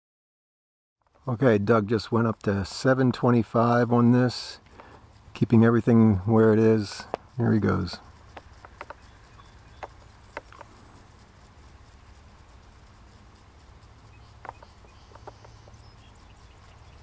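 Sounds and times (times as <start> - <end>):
steady low rumble: 1.2 - 17.0
faint clicks: 7.0 - 13.2, 13.8 - 17.0.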